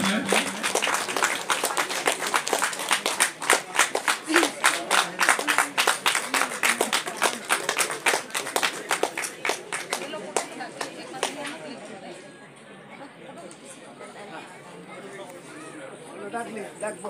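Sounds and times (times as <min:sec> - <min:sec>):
people clapping: 0:00.0 - 0:11.8.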